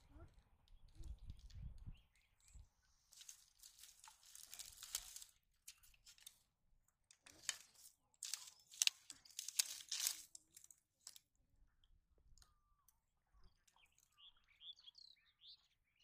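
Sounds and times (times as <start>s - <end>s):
dry straw crackling and rustling: 3.1s - 6.4s, 7.2s - 11.2s.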